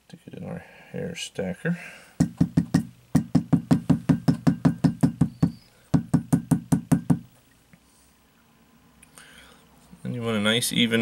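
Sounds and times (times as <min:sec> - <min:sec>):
metal hair stacker knocking: 0:02.2 - 0:07.3.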